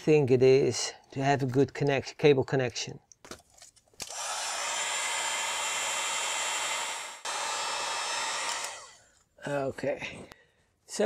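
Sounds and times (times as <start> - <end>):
heat gun blowing: 4.0 - 9.0.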